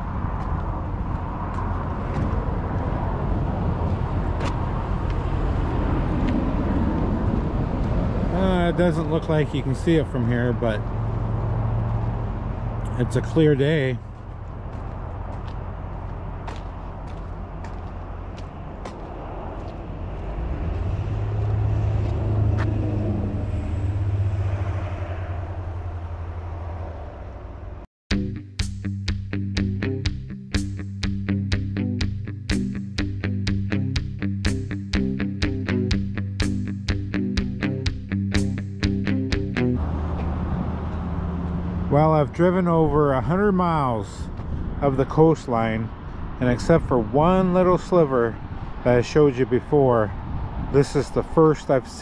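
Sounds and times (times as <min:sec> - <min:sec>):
low outdoor rumble: 0:00.0 - 0:27.9, 0:30.6 - 0:52.0
vehicle driving past: 0:00.0 - 0:27.9, 0:38.4 - 0:52.0.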